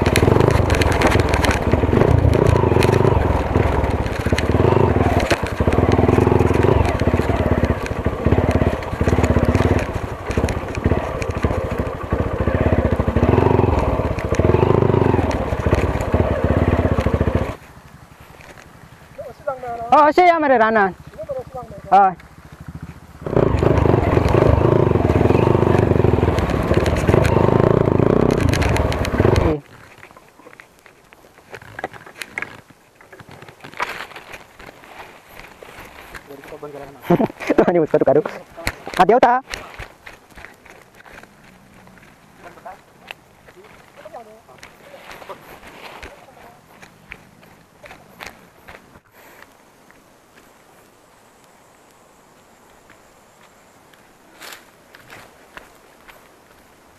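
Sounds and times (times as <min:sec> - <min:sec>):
motorcycle engine revving: 0:00.0 - 0:29.8, 0:33.4 - 0:49.0
grass and twigs scraping: 0:00.0 - 0:56.9.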